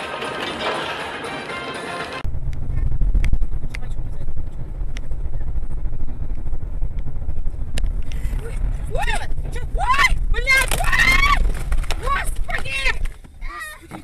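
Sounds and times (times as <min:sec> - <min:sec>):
music: 0:00.0 - 0:02.2
car engine and road noise: 0:00.0 - 0:14.0.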